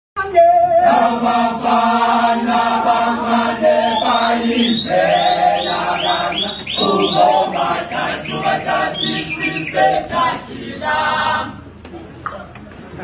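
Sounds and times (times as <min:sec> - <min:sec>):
male choir singing unaccompanied: 0:00.2 - 0:11.7
short high rising calls: 0:03.3 - 0:10.1.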